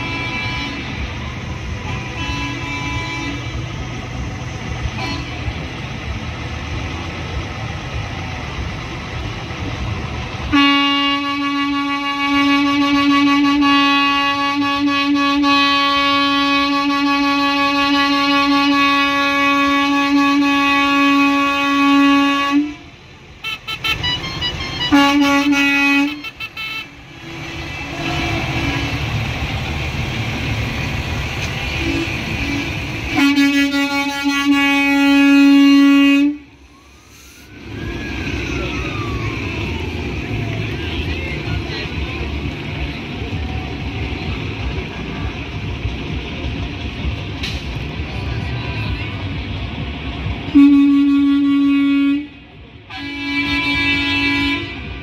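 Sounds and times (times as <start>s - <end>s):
truck horn blasts: 0.0s - 4.0s, 4.8s - 5.7s, 10.4s - 29.2s, 31.6s - 36.6s, 50.4s - 55.0s
heavy vehicle engine rumbling: 0.0s - 55.0s
siren wailing: 36.5s - 42.0s.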